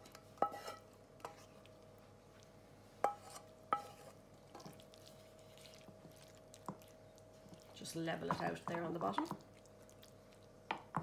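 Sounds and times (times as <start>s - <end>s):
wooden spoon scraping frying pan: 0.0s - 1.6s, 3.0s - 6.1s.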